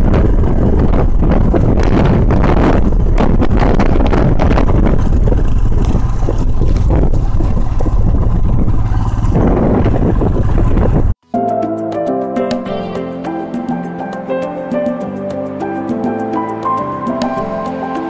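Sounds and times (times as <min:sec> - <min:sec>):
motorcycle engine running: 0:00.0 - 0:11.2
wind buffeting microphone: 0:00.0 - 0:11.2.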